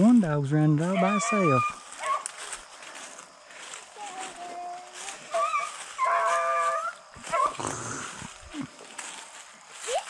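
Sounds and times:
dog baying: 0:00.9 - 0:02.3, 0:05.3 - 0:07.6.

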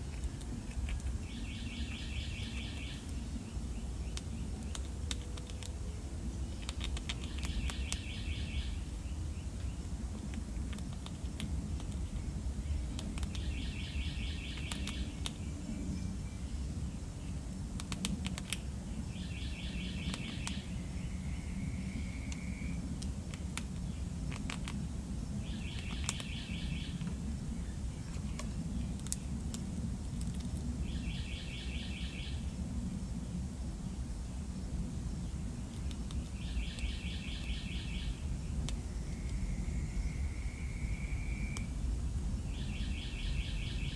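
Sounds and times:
squirrel gnawing corn: 0:00.0 - 0:31.7, 0:33.3 - 0:42.3
low outdoor rumble: 0:00.0 - 0:43.9
bird trill: 0:01.2 - 0:04.4, 0:06.4 - 0:09.4, 0:12.7 - 0:16.6, 0:19.1 - 0:22.8, 0:25.4 - 0:27.1, 0:30.9 - 0:32.4, 0:36.3 - 0:38.2, 0:42.5 - 0:43.9.

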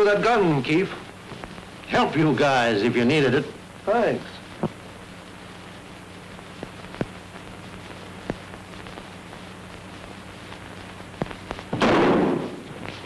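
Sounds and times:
film soundtrack hiss: 0:00.0 - 0:13.0
crackle clicks: 0:00.7 - 0:01.9, 0:04.3 - 0:11.9, 0:12.5 - 0:13.0
loud burst of noise: 0:11.6 - 0:12.7.

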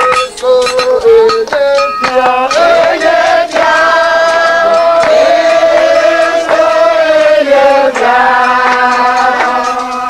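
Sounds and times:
voices singing a slow hymn: 0:01.7 - 0:10.0.

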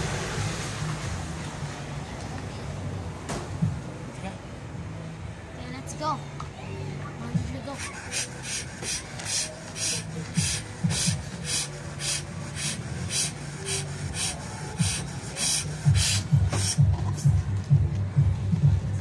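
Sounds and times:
person blowing up a balloon: 0:07.7 - 0:17.3.

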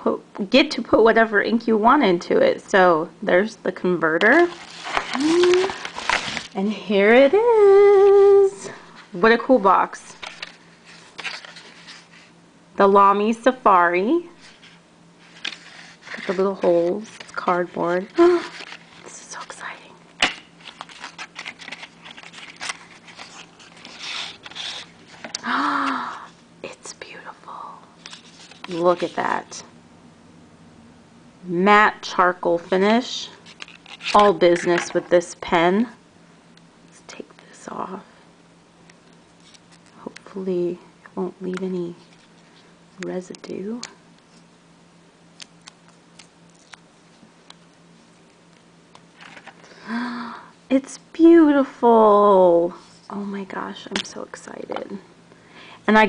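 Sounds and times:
low steady hum: 0:00.0 - 0:56.0
cardboard scraping: 0:14.4 - 0:19.1, 0:20.6 - 0:25.4.

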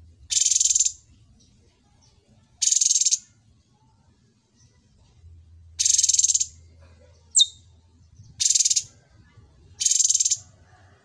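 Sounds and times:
songbird buzzy chattering: 0:00.3 - 0:01.0, 0:02.6 - 0:03.3, 0:05.8 - 0:06.6, 0:07.3 - 0:07.6, 0:08.2 - 0:09.0, 0:09.8 - 0:10.4.

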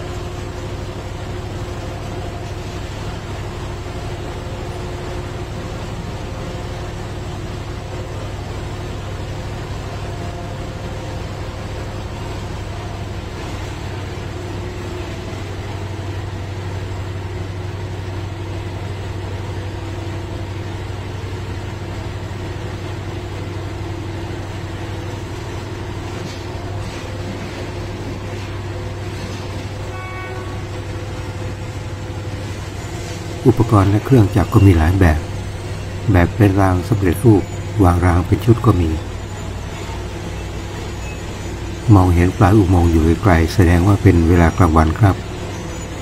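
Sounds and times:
low engine drone: 0:00.0 - 0:46.0
steady higher tones: 0:29.8 - 0:46.0.

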